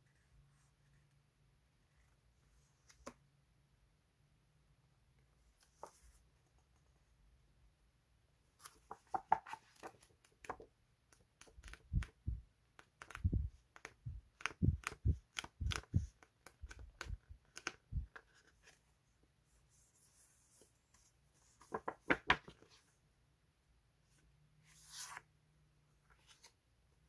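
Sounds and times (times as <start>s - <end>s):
paper sheets rustling: 21.5s - 22.7s.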